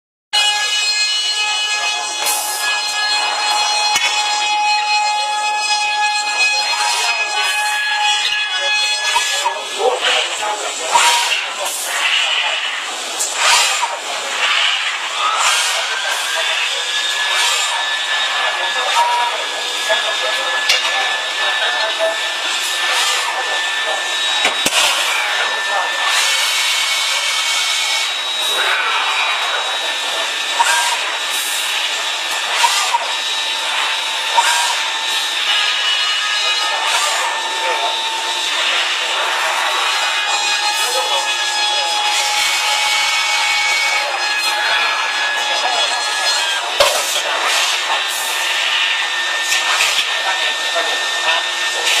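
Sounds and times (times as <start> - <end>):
machine whirring: 0.4 - 52.0
sharp machine clack: 10.8 - 12.6, 13.2 - 18.3, 22.3 - 38.8.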